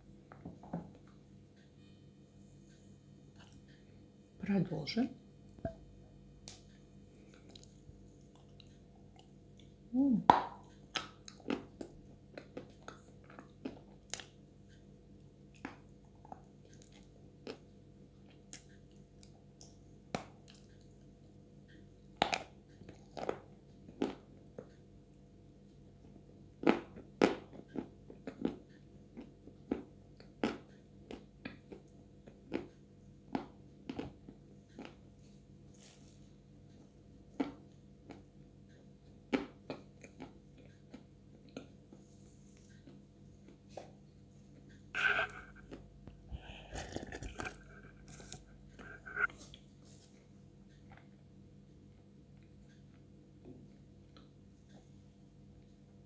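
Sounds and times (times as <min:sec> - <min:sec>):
wet mouth clicks: 0:45.0 - 0:45.8, 0:46.4 - 0:49.3
crunchy chewing: 0:46.4 - 0:49.6.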